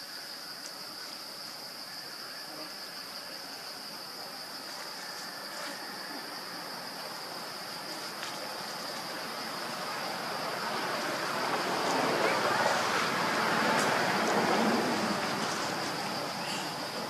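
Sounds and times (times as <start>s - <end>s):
insects droning: 0.0s - 17.0s
broad rushing noise: 6.8s - 17.0s.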